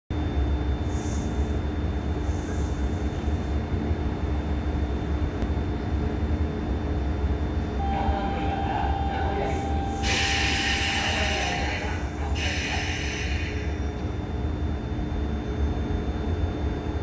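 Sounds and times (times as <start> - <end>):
electric train equipment humming: 0.1 - 17.0
steady whining tones: 0.2 - 17.0.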